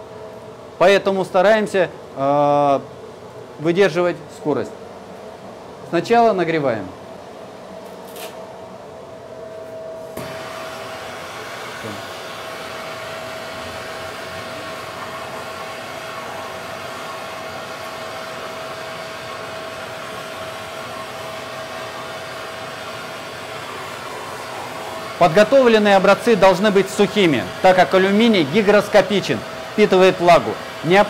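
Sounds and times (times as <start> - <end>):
gas torch hissing: 10.2 - 31.0.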